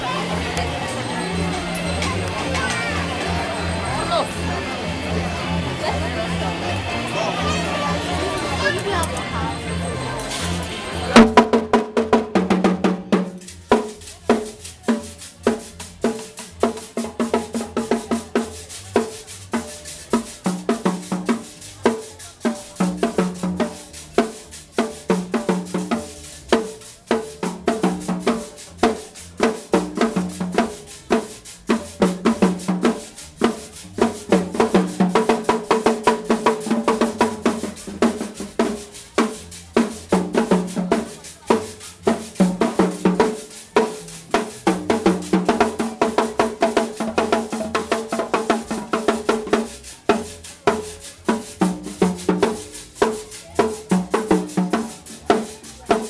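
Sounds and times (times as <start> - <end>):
bass drum beats: 0.0 - 56.0
cymbals: 0.0 - 56.0
snare drums: 11.2 - 56.0.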